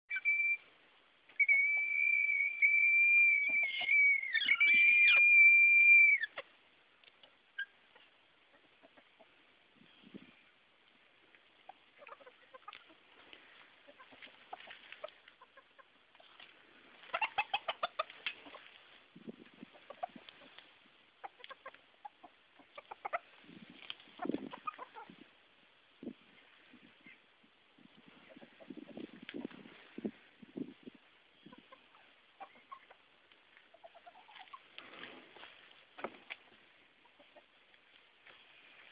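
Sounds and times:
roosters alarm calls: 1.3s - 6.6s, 11.5s - 18.9s, 19.6s - 25.3s, 31.4s - 37.6s
rooster high-pitched scream: 1.4s - 6.4s
second bird call dipping and rising: 1.4s - 6.4s.

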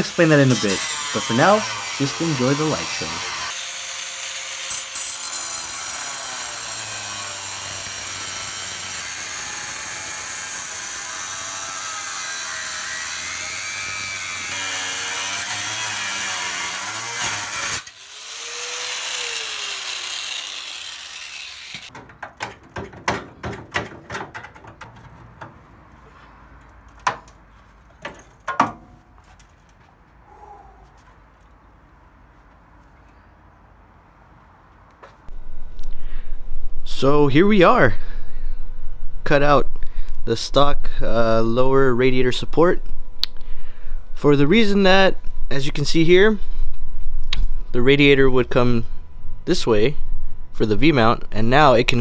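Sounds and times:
cutoff grinder whining: 4.3s - 21.9s
metal knocks and clanks: 21.9s - 25.6s, 26.9s - 29.5s.

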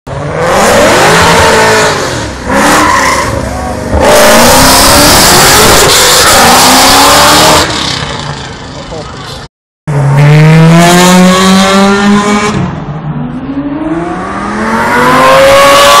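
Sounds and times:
car engine accelerating hard: 9.9s - 16.0s.

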